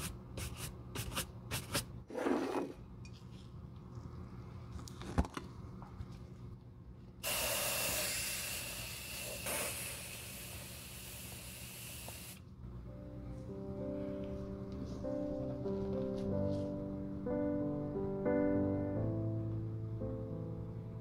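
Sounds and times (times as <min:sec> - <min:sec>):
aerosol spray hissing: 0:07.2 - 0:12.4
background music: 0:12.7 - 0:21.0.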